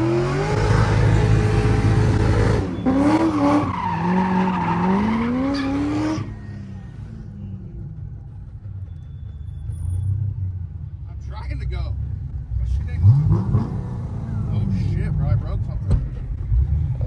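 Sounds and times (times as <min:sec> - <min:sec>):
car engine revving: 0:00.0 - 0:08.5, 0:12.2 - 0:17.0
tyres screeching: 0:02.4 - 0:06.8.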